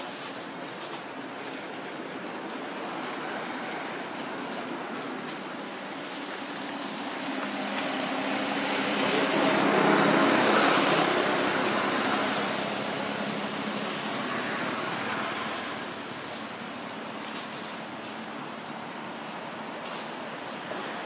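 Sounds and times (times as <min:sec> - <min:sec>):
road vehicle passing by: 0:00.0 - 0:21.0.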